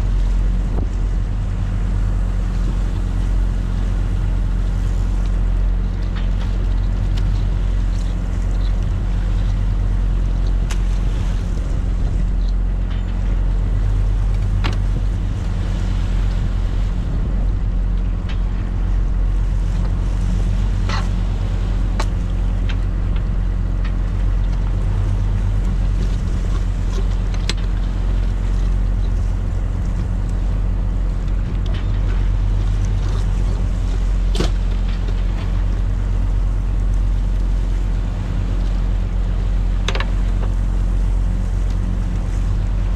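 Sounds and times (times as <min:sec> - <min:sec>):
boat engine droning: 0:00.0 - 0:42.9
water noise: 0:00.0 - 0:42.9
wind noise: 0:00.0 - 0:42.9.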